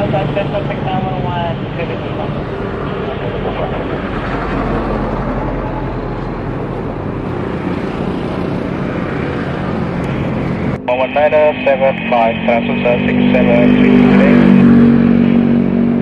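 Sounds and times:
jet airliner engine rumble: 0.0s - 16.0s.

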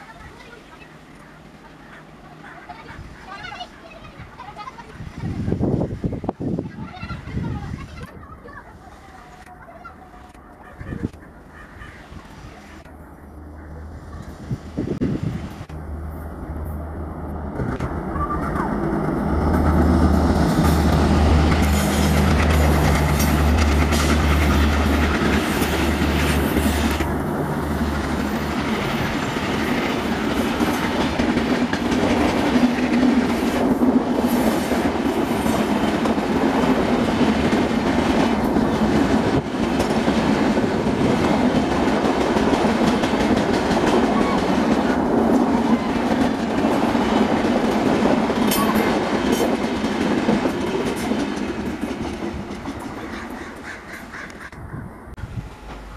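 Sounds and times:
diesel locomotive engine drone: 7.4s - 55.9s
rail clickety-clack: 16.6s - 55.9s.

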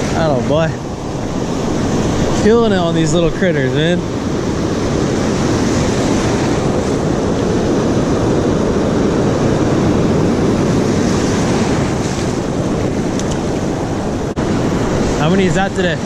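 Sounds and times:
ocean surf breaking on beach: 0.0s - 16.0s
wind buffeting microphone: 0.0s - 16.0s.

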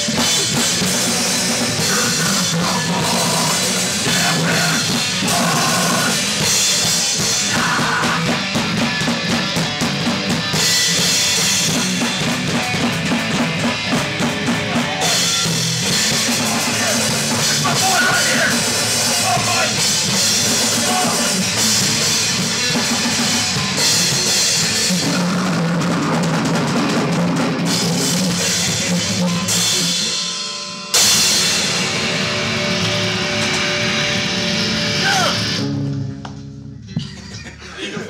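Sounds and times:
metal band playing loud: 0.0s - 38.0s.

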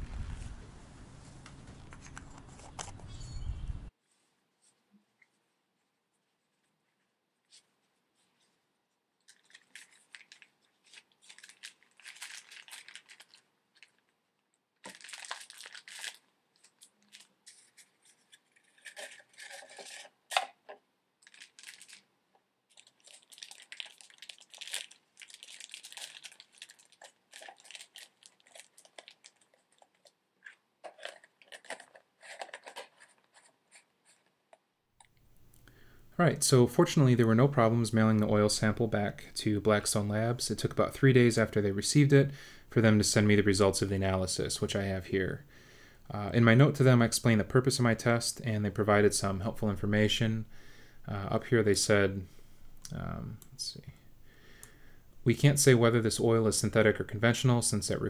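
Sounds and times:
plastic bag rustling: 9.2s - 14.2s, 14.8s - 20.5s, 21.2s - 22.1s, 22.7s - 34.5s.

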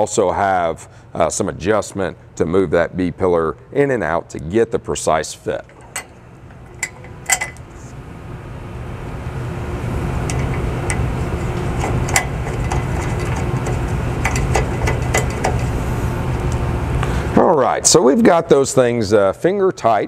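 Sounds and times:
low machine rumble: 4.8s - 19.2s.

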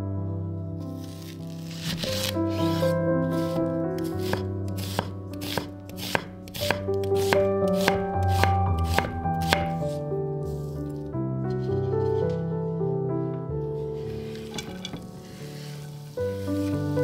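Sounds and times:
background music: 0.0s - 17.0s
knife slicing onion on board: 1.1s - 2.8s, 4.0s - 10.0s.

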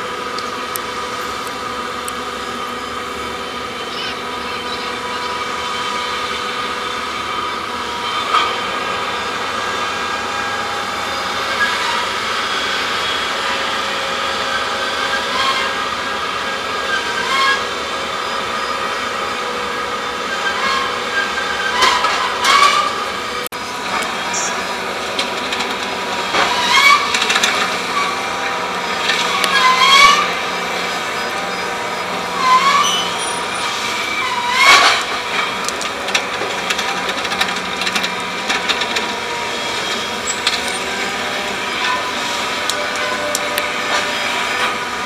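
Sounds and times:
machinery droning: 0.0s - 45.0s
short squeals: 29.1s - 35.2s.

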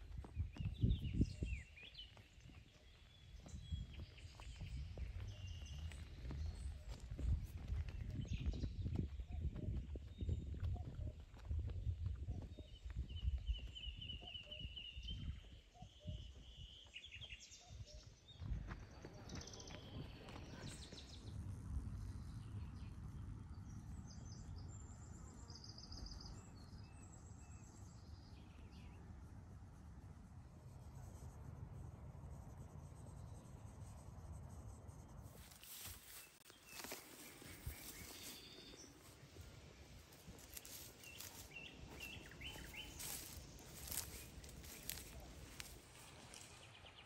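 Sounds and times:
birds chirping: 0.0s - 29.0s, 35.3s - 47.0s.

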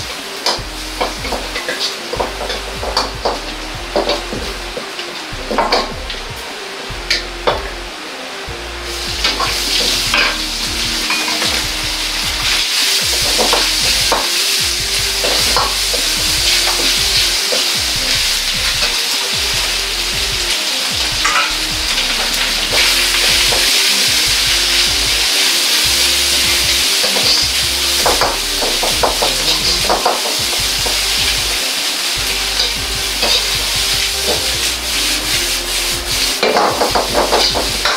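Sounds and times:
food sizzling in a wok: 8.8s - 37.9s.

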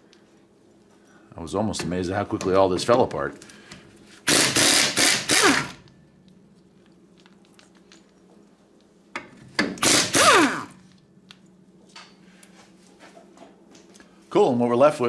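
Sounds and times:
impact gun whirring: 4.2s - 5.9s, 9.6s - 10.8s.

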